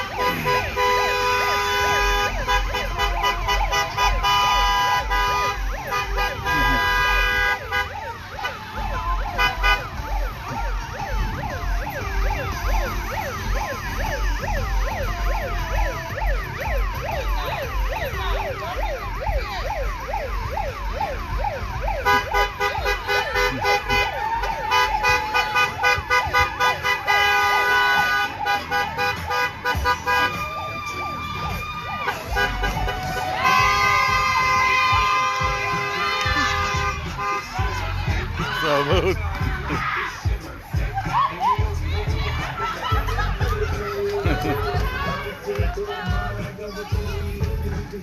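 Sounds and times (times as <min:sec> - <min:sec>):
horn blasts: 0:00.0 - 0:17.2, 0:19.9 - 0:30.6, 0:32.0 - 0:38.2
sirens wailing: 0:00.0 - 0:48.0.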